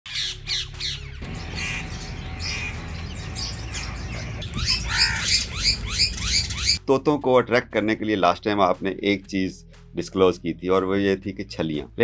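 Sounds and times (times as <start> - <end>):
parakeets squawking: 0.1 - 6.8.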